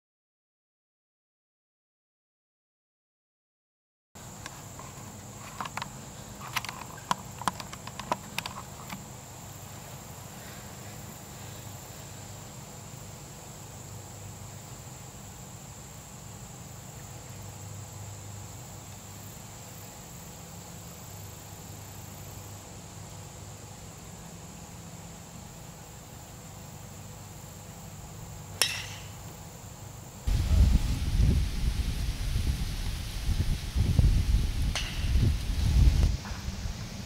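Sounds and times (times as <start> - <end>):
insects droning: 4.2 - 37.0
low outdoor hum: 4.2 - 37.0
sharp clicks and taps: 6.5 - 9.0.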